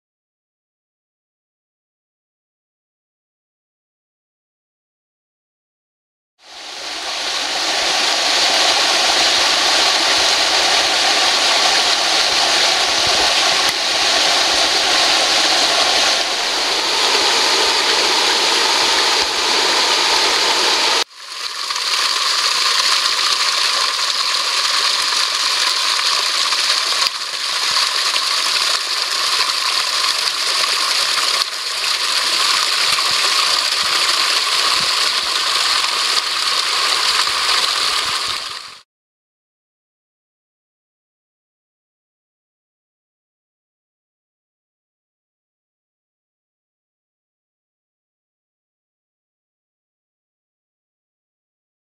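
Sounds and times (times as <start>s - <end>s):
waterfall rushing onto rocks: 6.5s - 38.8s.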